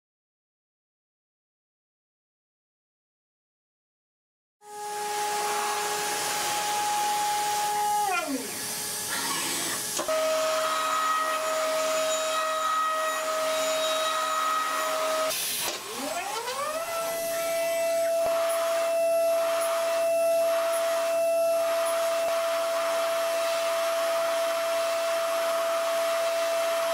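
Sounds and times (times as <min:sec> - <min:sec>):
milling machine spindle whine: 0:04.7 - 0:26.9
hiss: 0:13.3 - 0:16.1.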